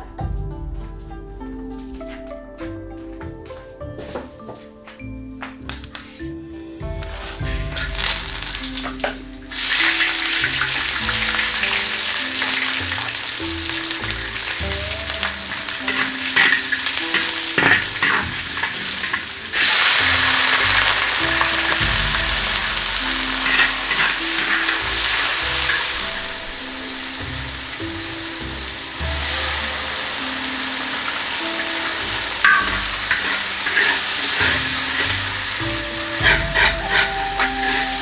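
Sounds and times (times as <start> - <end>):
light background music: 0.0 - 38.0
oil sizzling in a wok: 6.8 - 38.0
metal ladle scraping a pan: 7.0 - 27.8, 29.2 - 38.0.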